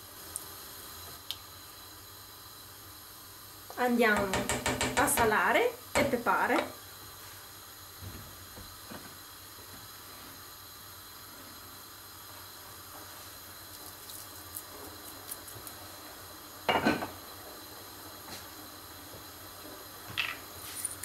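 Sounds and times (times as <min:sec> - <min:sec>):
pot hissing on gas burner: 0:00.0 - 0:21.0
knock: 0:04.2 - 0:05.1.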